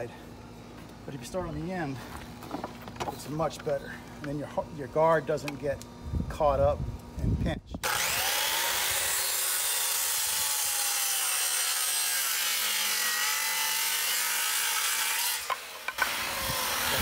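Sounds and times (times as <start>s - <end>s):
circular saw cutting wood: 7.8s - 17.0s.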